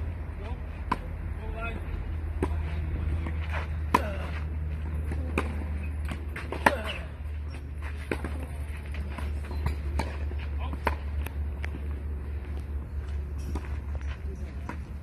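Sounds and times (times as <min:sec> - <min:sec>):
steady low rumble: 0:00.0 - 0:15.0
tennis ball struck by racket: 0:00.8 - 0:01.2, 0:02.3 - 0:07.2, 0:07.9 - 0:11.8
tennis ball bouncing on clay: 0:00.8 - 0:15.0.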